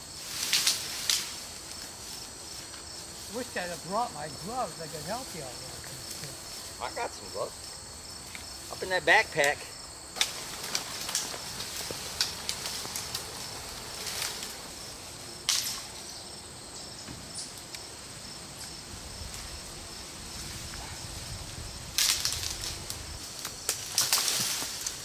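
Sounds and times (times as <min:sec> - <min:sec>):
rustling and cracking branches: 0:00.0 - 0:07.0, 0:09.4 - 0:16.2, 0:17.2 - 0:25.0
insects chirring: 0:00.0 - 0:25.0
branch snapping: 0:00.4 - 0:01.4, 0:10.2 - 0:14.6, 0:15.5 - 0:15.9, 0:22.0 - 0:25.0.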